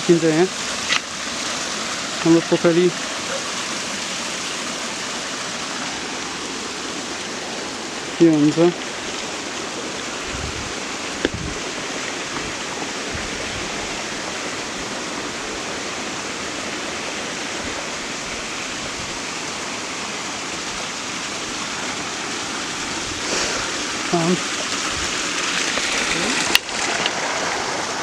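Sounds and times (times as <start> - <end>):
stream running over rocks: 0.0 - 28.0.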